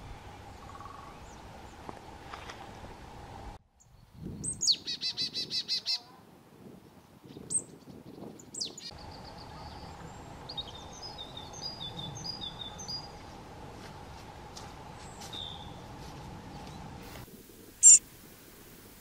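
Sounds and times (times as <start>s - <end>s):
woodpecker piping calls: 0.6s - 1.4s, 3.8s - 6.0s
high thin bird chirps: 17.8s - 18.0s.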